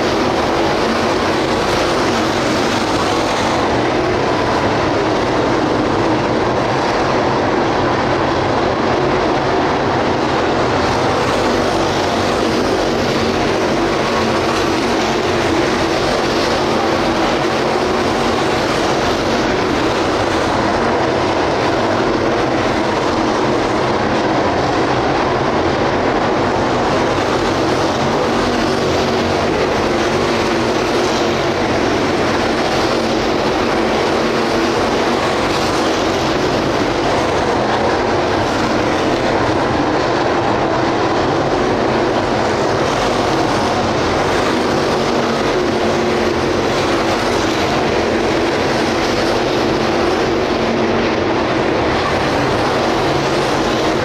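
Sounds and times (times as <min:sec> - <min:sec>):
race car engines roaring: 0:00.0 - 0:54.0.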